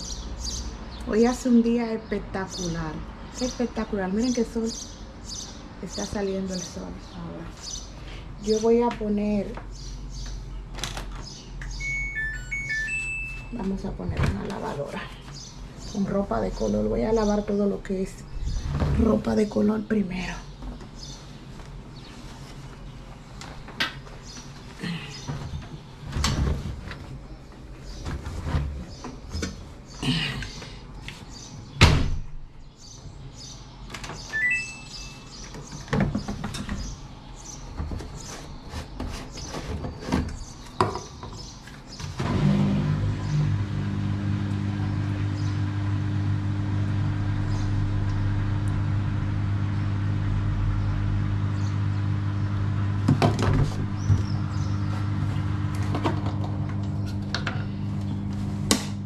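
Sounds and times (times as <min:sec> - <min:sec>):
washing machine humming: 0:11.7 - 0:15.0, 0:42.0 - 0:59.0.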